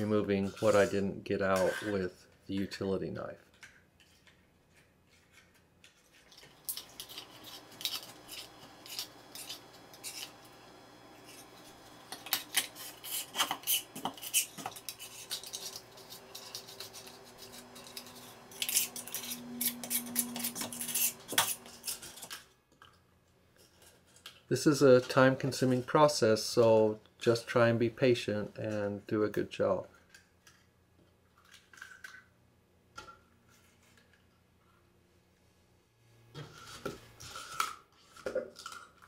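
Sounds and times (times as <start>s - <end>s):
razor blade scraping caulk: 6.7s - 22.3s.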